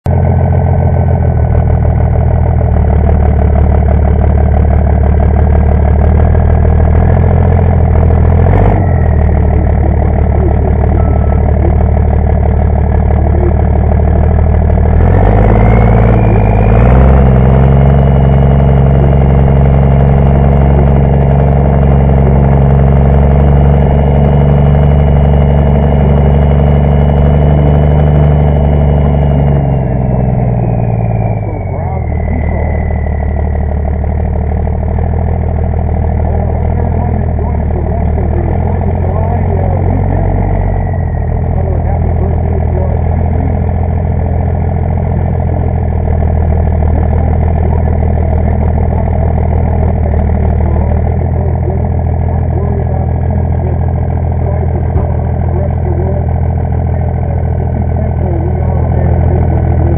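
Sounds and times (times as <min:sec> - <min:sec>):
high whine: 0:00.0 - 0:59.9
truck engine revving: 0:00.0 - 0:59.9.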